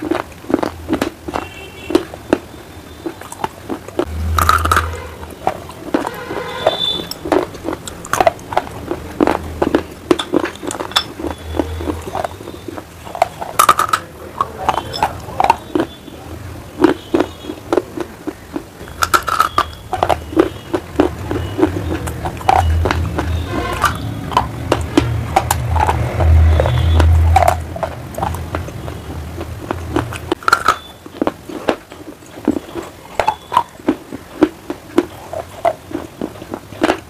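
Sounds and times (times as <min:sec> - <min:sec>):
crunchy chewing: 0:00.0 - 0:37.0
wet mouth sounds: 0:00.0 - 0:37.0.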